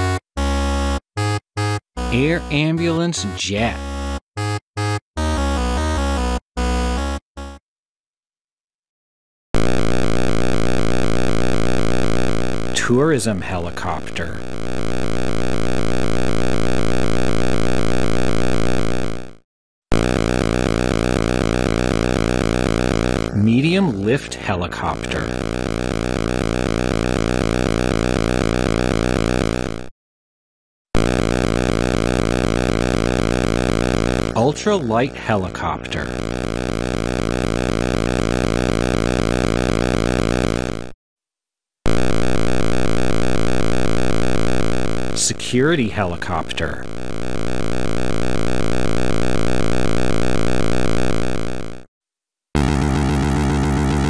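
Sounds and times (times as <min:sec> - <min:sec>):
synthesized helicopter sound: 0:09.6 - 0:29.9, 0:31.0 - 0:41.0, 0:41.9 - 0:51.9, 0:52.6 - 0:54.0.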